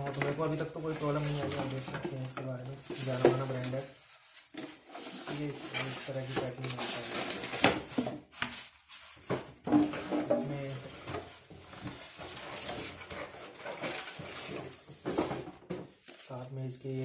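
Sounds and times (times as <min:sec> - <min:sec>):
cardboard and foam knocking and scraping: 0:04.5 - 0:16.3.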